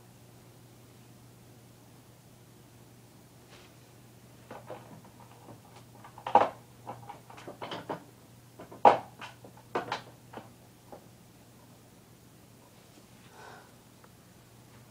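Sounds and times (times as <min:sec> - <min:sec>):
steady low hum: 0:00.0 - 0:14.9
irregular knocks and clicks: 0:04.5 - 0:11.0.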